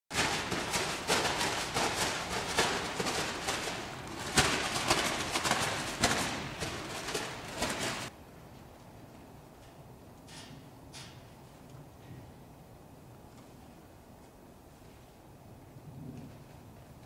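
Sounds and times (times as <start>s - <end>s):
plastic bag rustling and flapping: 0.1s - 8.1s.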